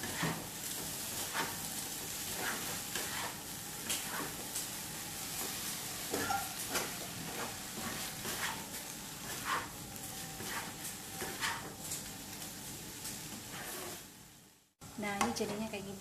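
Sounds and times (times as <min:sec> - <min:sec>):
spatula scraping and knocking pan: 0:00.0 - 0:04.5, 0:05.4 - 0:12.0, 0:13.3 - 0:14.1
food sizzling in wok: 0:00.0 - 0:16.0.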